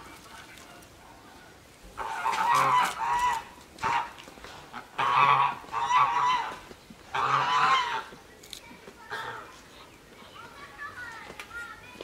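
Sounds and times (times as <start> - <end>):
geese honking: 2.0 - 8.1.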